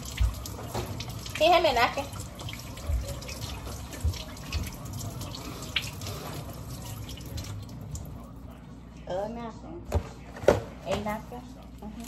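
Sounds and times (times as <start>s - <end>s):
faucet running into sink: 0.0s - 8.2s.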